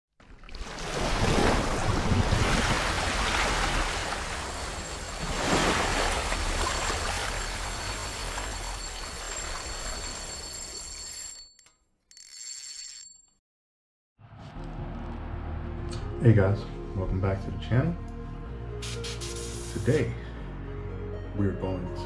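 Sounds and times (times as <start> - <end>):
rushing water splashing: 0.2 - 10.3
faint high steady tones: 4.6 - 11.7.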